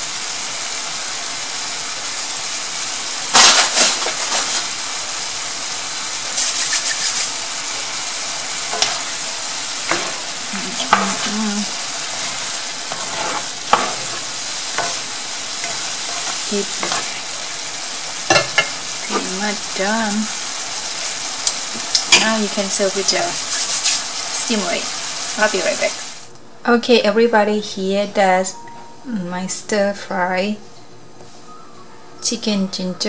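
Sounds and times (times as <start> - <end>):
food sizzling in a skillet: 0.0 - 26.3
stirring in pan: 6.3 - 19.4, 23.2 - 24.4.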